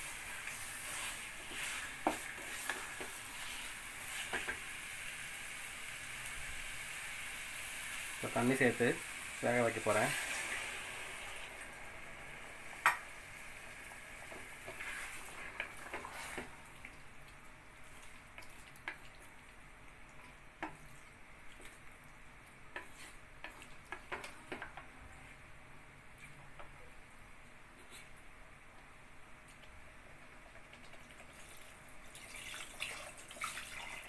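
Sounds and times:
water sizzling in hot pot: 0:00.0 - 0:21.9, 0:30.5 - 0:34.0.

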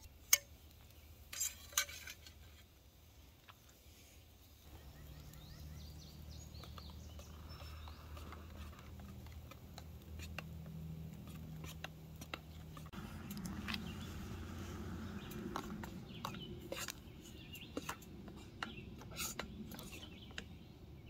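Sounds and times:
burning sticks crackling: 0:00.0 - 0:20.5
birds chirping: 0:04.4 - 0:21.0.

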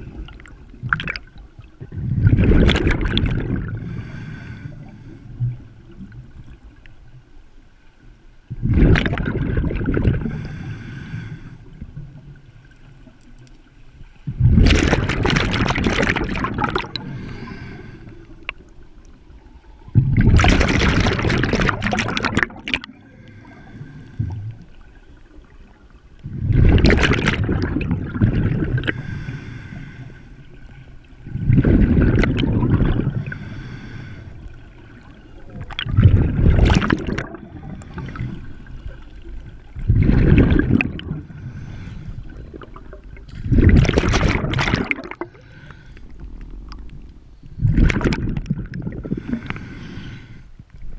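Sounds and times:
exhaled bubbles gurgling: 0:00.0 - 0:06.8, 0:08.5 - 0:10.8, 0:14.3 - 0:29.4, 0:31.1 - 0:49.7.

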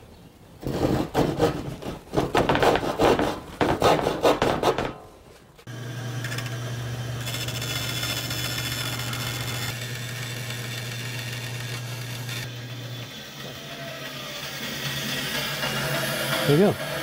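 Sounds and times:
saw blade cutting wood: 0:00.6 - 0:05.0, 0:05.7 - 0:17.0
bandsaw motor hum: 0:05.7 - 0:17.0.

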